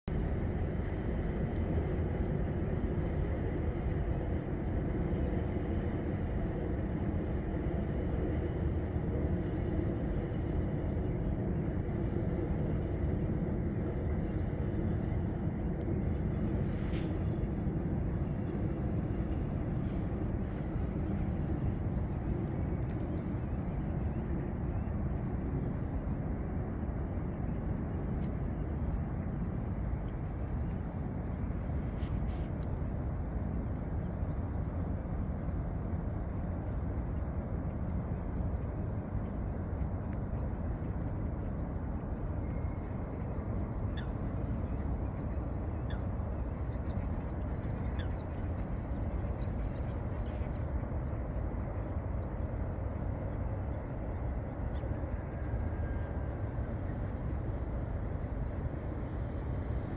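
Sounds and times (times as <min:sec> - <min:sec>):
distant city traffic rumble: 0:13.1 - 0:59.9.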